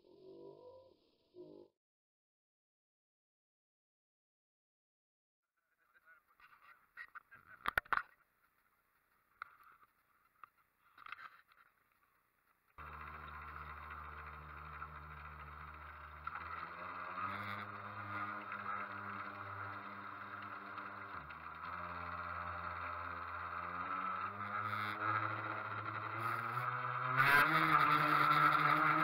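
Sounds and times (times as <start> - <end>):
model boat motor running: 12.8 - 29.0.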